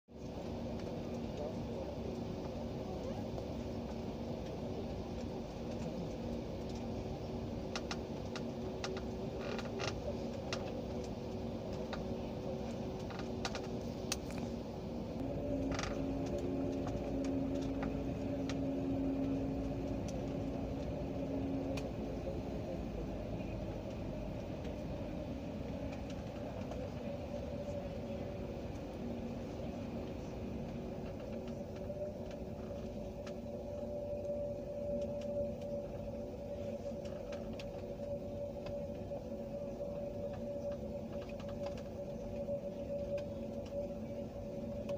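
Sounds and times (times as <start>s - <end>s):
jet engines humming: 0.2s - 44.9s
light clicks and creaks: 7.6s - 14.6s, 15.2s - 27.8s, 29.7s - 44.9s.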